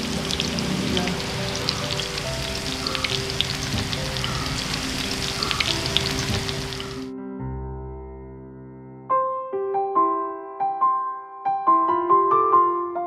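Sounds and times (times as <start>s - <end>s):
fish sizzling in oil: 0.0s - 7.1s
background music: 0.0s - 13.0s.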